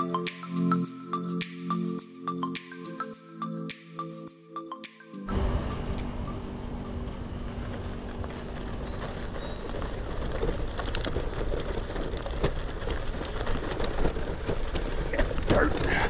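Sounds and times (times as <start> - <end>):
bike tyres crunching over gravel: 7.0 - 16.0
bike rattling and knocking: 7.4 - 16.0.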